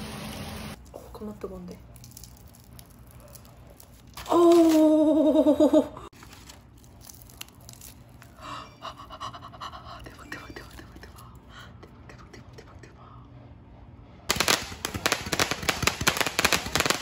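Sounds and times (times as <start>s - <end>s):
woman crying out: 4.3s - 6.1s.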